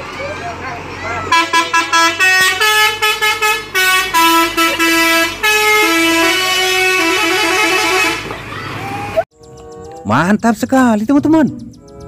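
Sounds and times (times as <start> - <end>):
buzzy horn-like tune: 1.3 - 8.2.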